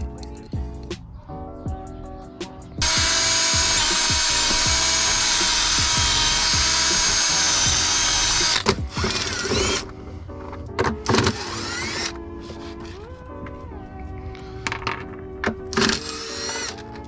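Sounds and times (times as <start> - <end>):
cordless drill boring through steel: 2.8 - 9.9, 11.1 - 13.0, 15.8 - 16.8.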